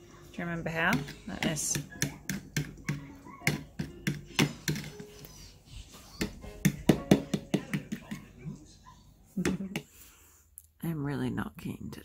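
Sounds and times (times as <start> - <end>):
whisk tapping plastic bowl: 0.7 - 5.2, 6.2 - 8.4.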